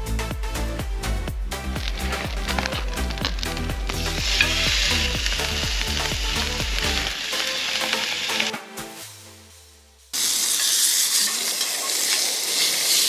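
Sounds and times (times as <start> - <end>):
steak sizzling in frying pan: 1.8 - 8.5, 10.2 - 13.0.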